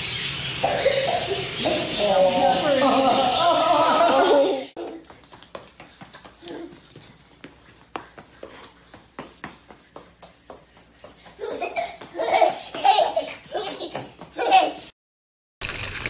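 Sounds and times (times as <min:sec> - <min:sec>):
hearty laughter: 0:02.5 - 0:05.0.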